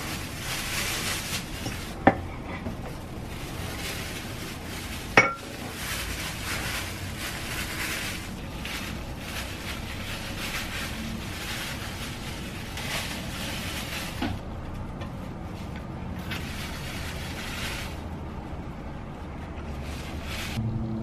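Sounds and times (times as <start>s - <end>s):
plastic wrap crinkling: 0.0s - 14.5s, 15.2s - 18.2s, 19.4s - 20.6s
low background hum: 0.0s - 21.0s.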